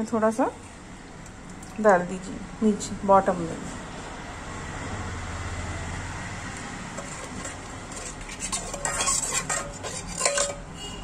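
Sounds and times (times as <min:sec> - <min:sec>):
utensil clinking on cookware: 0:06.9 - 0:11.0.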